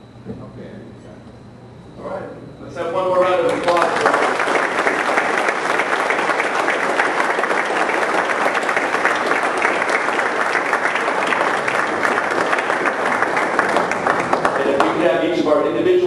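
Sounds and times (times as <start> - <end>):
audience applauding: 3.2 - 16.0.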